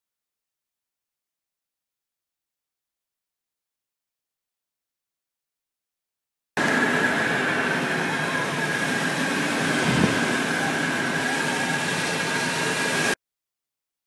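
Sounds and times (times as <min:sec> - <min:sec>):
cockpit airflow rushing: 0:06.6 - 0:13.2
steady high tone: 0:06.6 - 0:13.2.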